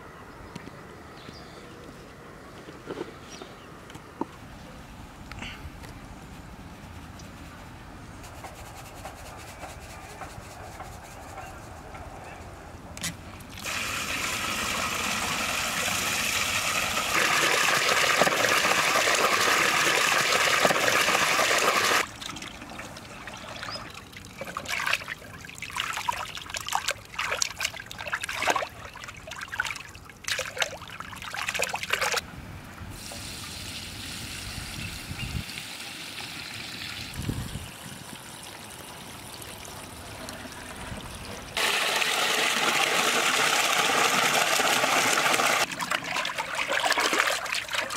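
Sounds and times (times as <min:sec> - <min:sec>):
water gushing from hose into pot: 0:13.6 - 0:22.1, 0:41.6 - 0:47.9
hands splashing in water: 0:23.7 - 0:32.2.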